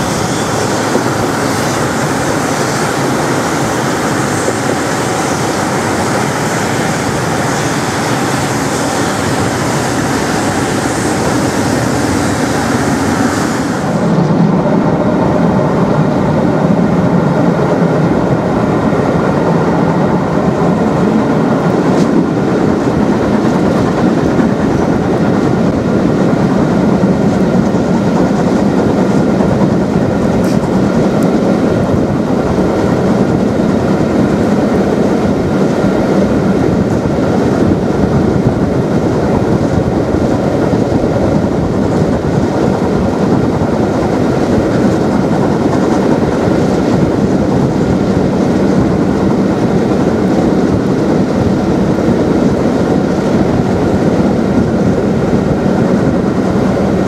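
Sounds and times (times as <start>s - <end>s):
hiss: 0.0s - 14.2s
clickety-clack of train wheels: 0.0s - 57.0s
train wheels rumbling on rail: 0.0s - 57.0s.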